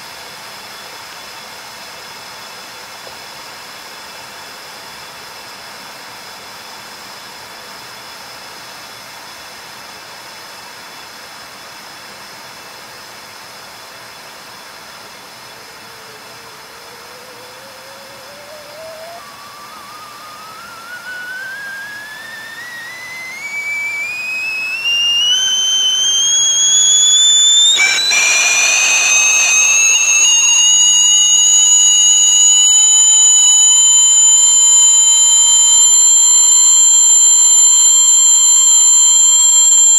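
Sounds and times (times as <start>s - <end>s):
kettle hissing: 15.6s - 39.9s
kettle whistling: 15.6s - 39.9s.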